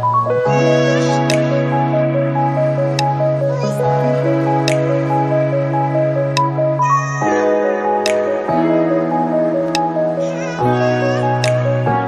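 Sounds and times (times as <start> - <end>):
background music with held chords: 0.0 - 12.0
light high tick: 11.4 - 11.7.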